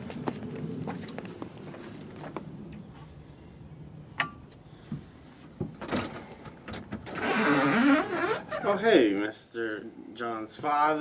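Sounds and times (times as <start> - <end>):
door creaking open: 5.8 - 8.8.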